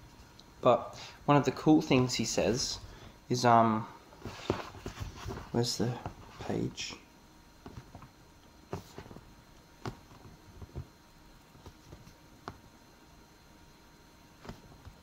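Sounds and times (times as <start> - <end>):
paper pages rustling: 4.2 - 6.6.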